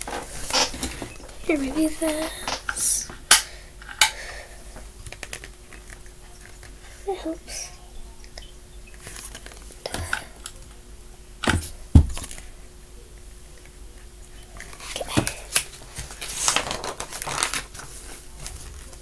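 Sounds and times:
book knocks and thumps: 11.5 - 12.3
book rustling and scraping: 15.7 - 19.0.

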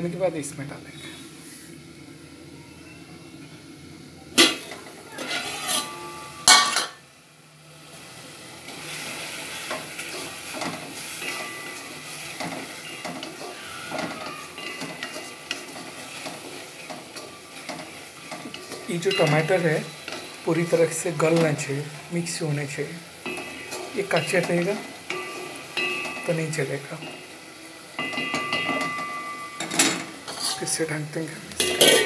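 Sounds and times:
tomatoes sizzling in a pot: 0.0 - 32.0
cookware clattering: 4.4 - 7.0, 9.6 - 21.7, 23.2 - 27.3, 27.9 - 30.8, 31.5 - 32.0
spatula stirring and scraping: 5.2 - 6.6, 8.7 - 21.7, 23.2 - 26.3, 30.2 - 30.8.

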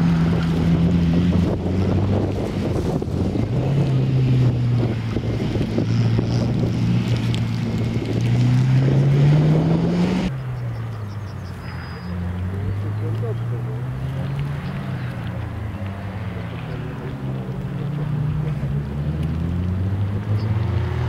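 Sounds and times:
wind noise: 0.0 - 11.0
race car engine revving: 0.0 - 21.0.

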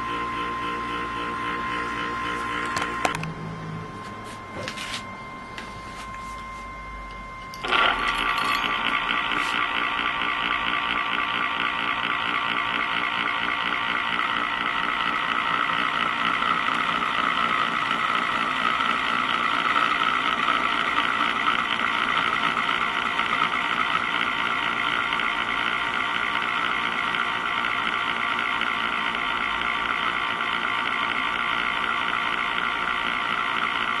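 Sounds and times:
spinning top whirring rattle: 7.5 - 24.4.

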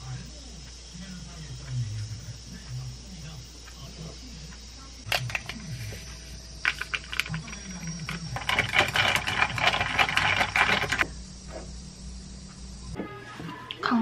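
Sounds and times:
ice cubes clinking in a glass: 8.4 - 11.0.

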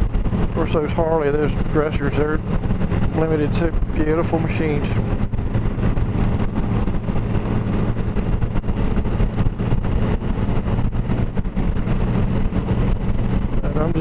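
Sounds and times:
motorcycle engine cruising: 0.0 - 14.0
wind buffeting microphone: 0.0 - 14.0.

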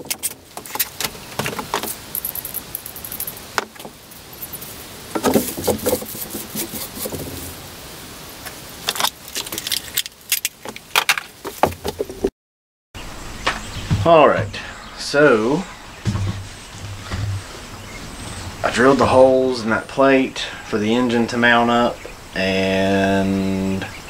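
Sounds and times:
steady background hiss: 0.0 - 12.2, 13.0 - 24.0
metal plate clinking and scraping: 1.8 - 3.6, 4.3 - 7.6.

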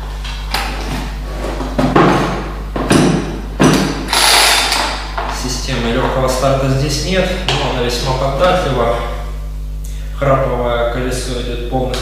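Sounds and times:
chainsaw starter cord pulls: 4.1 - 4.9.

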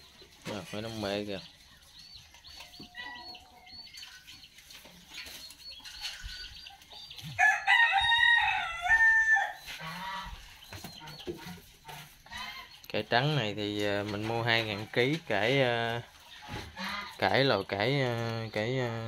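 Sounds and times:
chicken clucking: 0.0 - 19.0
rooster crowing: 7.4 - 9.6.

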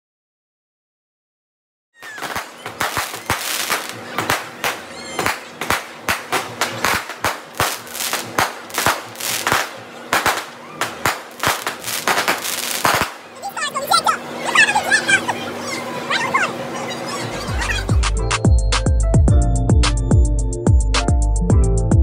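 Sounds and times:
fireworks bangs and crackles: 2.0 - 14.3.

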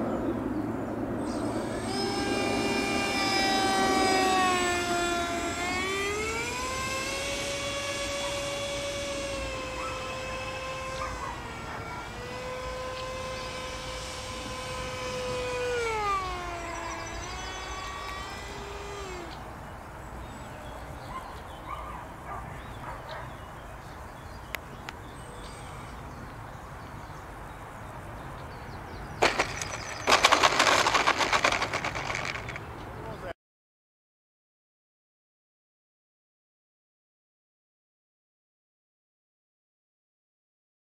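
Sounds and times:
model plane motor whining: 1.1 - 21.2, 29.2 - 32.7
model scraping on asphalt: 1.2 - 19.6, 29.2 - 32.8.

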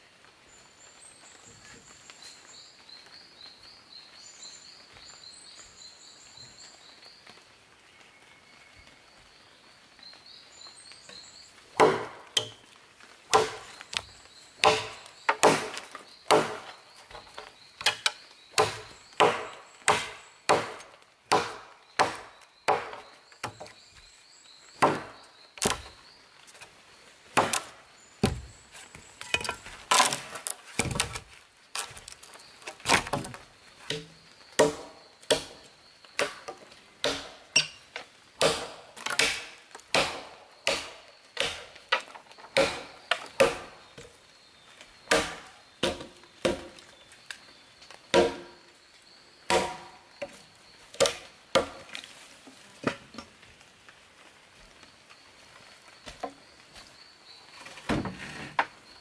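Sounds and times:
knife chopping wooden log: 11.8 - 12.5, 13.3 - 13.7, 14.6 - 16.7, 18.6 - 23.6, 38.4 - 41.6, 42.6 - 43.7, 45.1 - 46.8, 48.1 - 48.5, 49.5 - 49.9.

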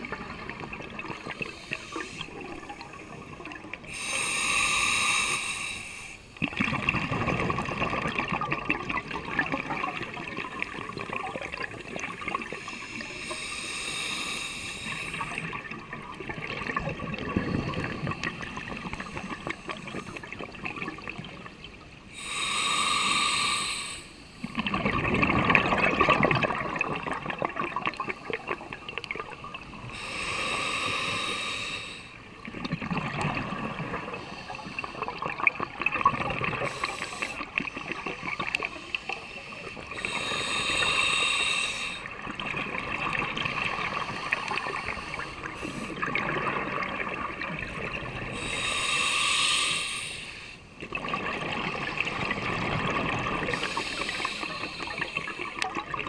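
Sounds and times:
hissing regulator inhalation: 1.2 - 2.6, 3.9 - 6.2, 12.6 - 15.6, 22.2 - 24.2, 29.9 - 32.2, 36.6 - 37.5, 38.2 - 42.1, 48.3 - 50.6, 53.4 - 55.7
bubbling exhalation: 24.6 - 29.3.

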